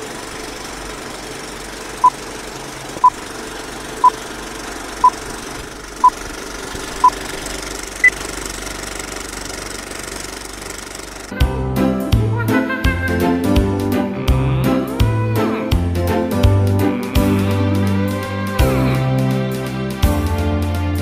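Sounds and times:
film projector whirring rattle: 0.0 - 11.4
music: 11.3 - 21.0.

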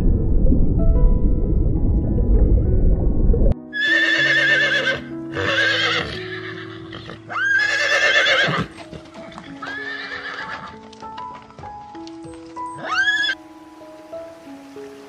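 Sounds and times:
background music with sustained notes: 0.0 - 15.0
horse whinnying: 3.7 - 10.8, 12.8 - 13.4.

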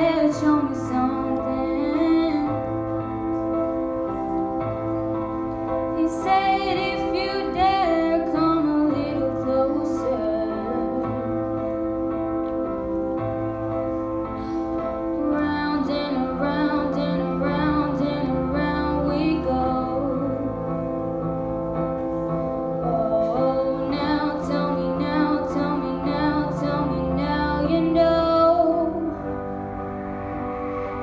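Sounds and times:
girl singing into microphone: 0.0 - 2.9, 5.9 - 11.6, 15.1 - 20.6, 22.8 - 29.4
instrumental accompaniment: 0.0 - 31.0.

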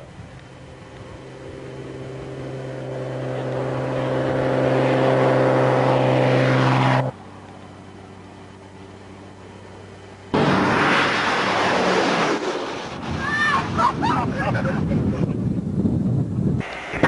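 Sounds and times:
propeller plane engines passing: 0.0 - 17.0.

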